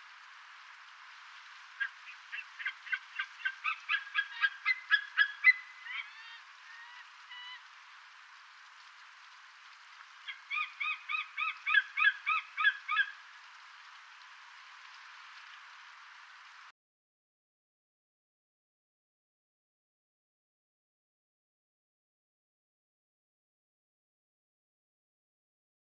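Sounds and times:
sea eagle calling: 1.8 - 7.6, 10.2 - 13.2.

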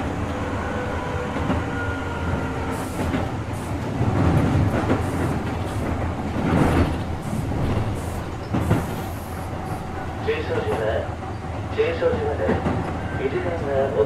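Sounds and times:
electric train rumble: 0.0 - 14.0
wheels clacking over rail joints: 1.2 - 9.2.

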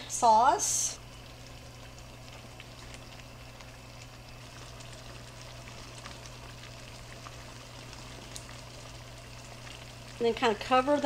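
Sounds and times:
sauce bubbling in skillet: 0.0 - 11.0
steady low hum: 0.0 - 11.0
small pops and ticks: 8.2 - 8.6.

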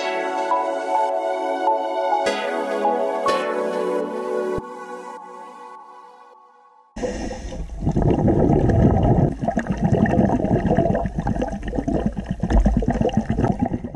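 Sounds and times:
background music: 0.0 - 7.0
underwater bubbling and gurgling: 7.0 - 13.9.

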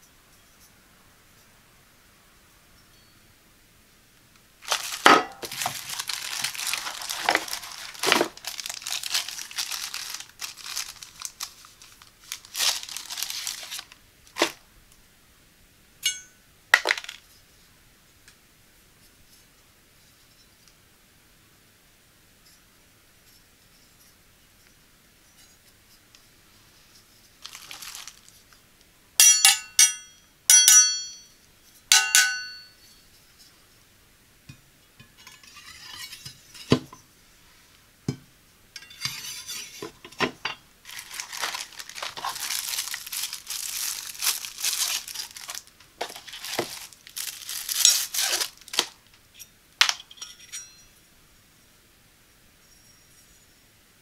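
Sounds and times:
plastic wrapping crinkling and tearing: 4.6 - 14.6, 27.4 - 28.6, 40.8 - 49.2
knife blades clinking: 16.0 - 16.4, 29.2 - 31.3, 31.9 - 33.0, 49.9 - 51.0.

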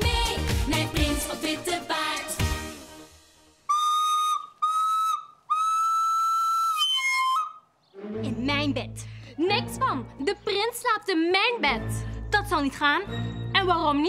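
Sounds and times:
song playing: 0.0 - 3.8
high whistle blasts: 3.7 - 7.7.

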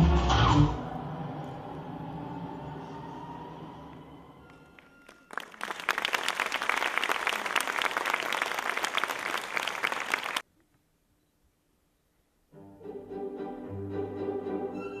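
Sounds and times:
audience applauding: 4.5 - 10.4.

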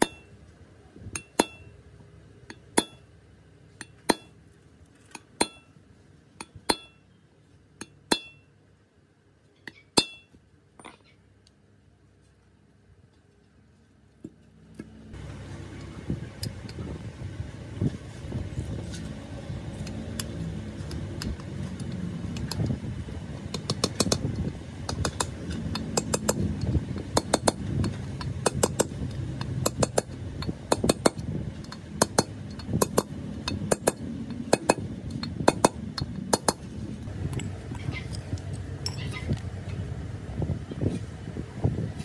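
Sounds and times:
hammer tapping on metal: 1.2 - 1.7, 2.5 - 3.1, 3.8 - 4.4, 6.4 - 7.0, 24.9 - 36.6
steady low rumble: 13.6 - 42.0.

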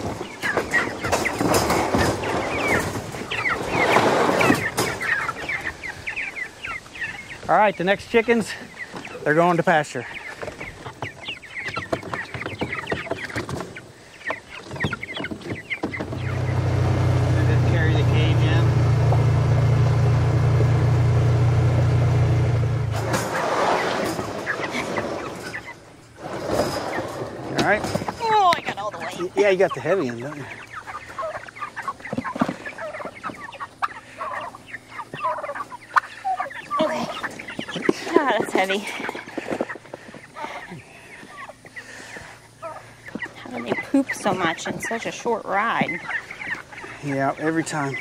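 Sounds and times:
young chickens peeping: 0.0 - 48.0.

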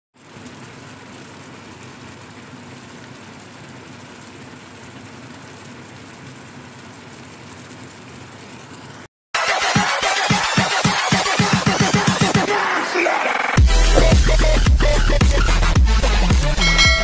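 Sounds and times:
curry simmering in a pan: 0.2 - 9.1
low hum: 16.3 - 17.0.

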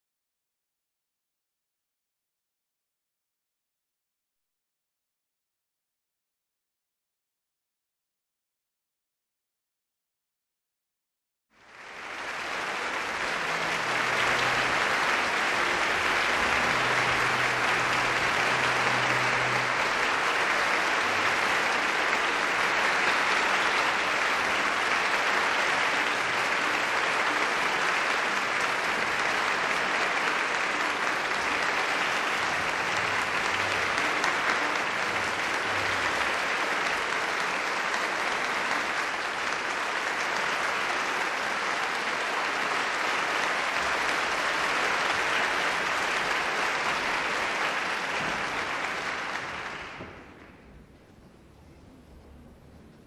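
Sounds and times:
large audience applauding: 11.5 - 50.8.

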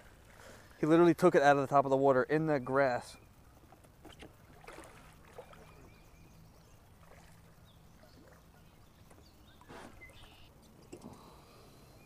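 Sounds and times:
soft water splashes: 3.8 - 11.3.

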